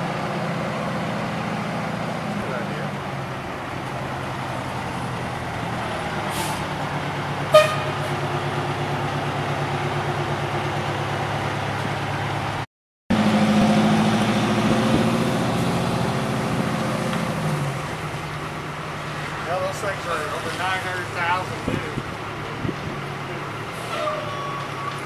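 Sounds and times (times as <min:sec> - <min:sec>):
truck engine running: 0:00.0 - 0:25.0
brief air hiss: 0:06.3 - 0:06.6
truck horn toot: 0:07.5 - 0:08.3.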